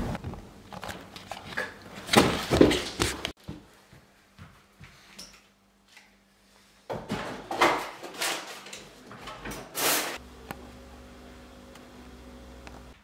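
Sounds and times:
things rattling inside refrigerator: 0:06.9 - 0:09.8
steady low hum: 0:10.2 - 0:13.0.

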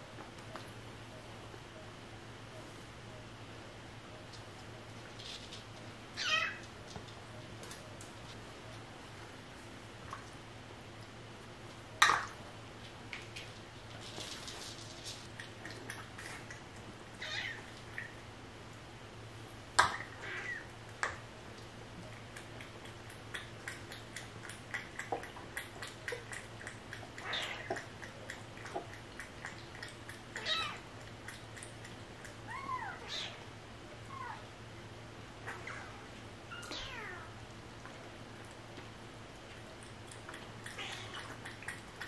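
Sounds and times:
cats lapping from bowl: 0:13.1 - 0:18.2, 0:21.6 - 0:32.5, 0:39.3 - 0:42.0.

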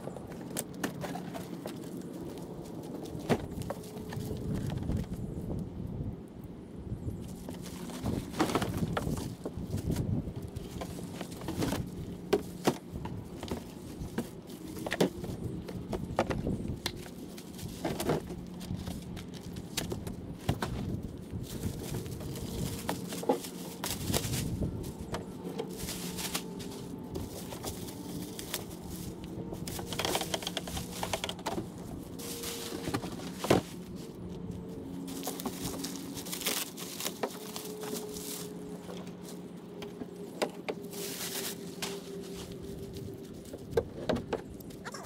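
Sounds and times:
steady low hum: 0:00.0 - 0:45.0
plastic wrap crinkling: 0:20.8 - 0:39.5.

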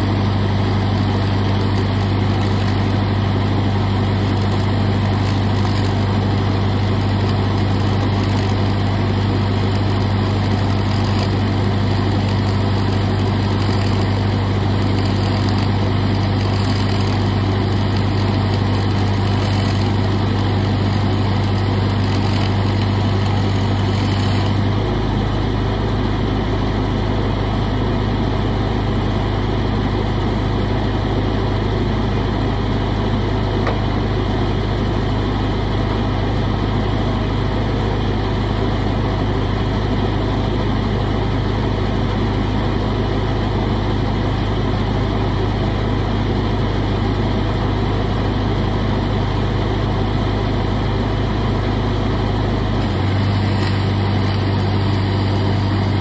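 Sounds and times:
welding arc: 0:00.0 - 0:25.1, 0:52.8 - 0:56.0
welder engine running: 0:00.0 - 0:56.0.

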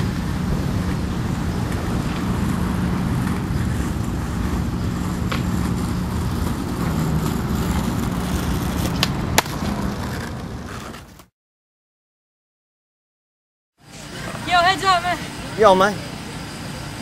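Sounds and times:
skateboard grinding on stone ledge: 0:00.5 - 0:11.3.

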